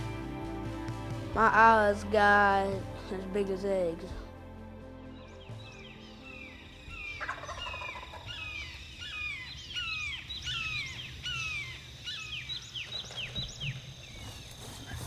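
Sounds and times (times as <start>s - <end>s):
turkey gobbling: 6.9s - 10.7s.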